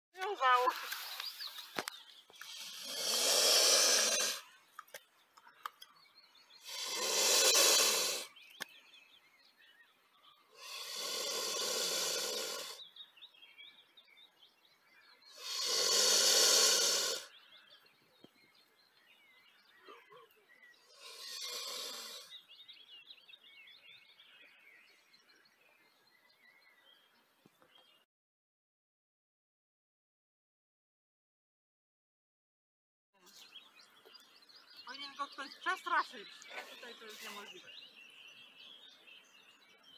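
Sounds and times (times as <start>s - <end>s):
small birds chirping: 0.2s - 28.1s, 33.2s - 39.9s
swan hissing: 2.4s - 4.5s, 6.6s - 8.4s, 10.5s - 12.8s, 15.3s - 17.3s, 20.8s - 22.4s.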